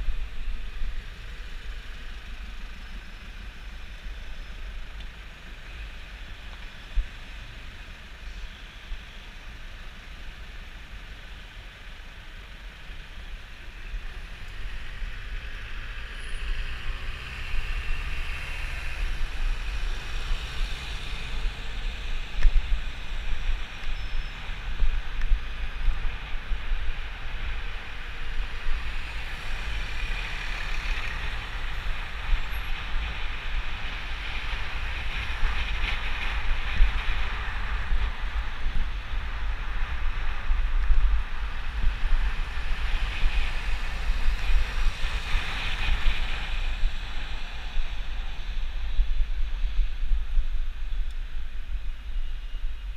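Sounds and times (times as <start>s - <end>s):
road noise: 0.0s - 52.9s.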